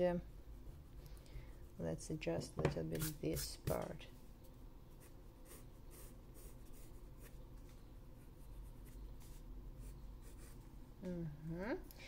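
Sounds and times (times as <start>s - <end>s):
pencil scratching on paper: 5.0s - 7.4s, 8.4s - 10.6s.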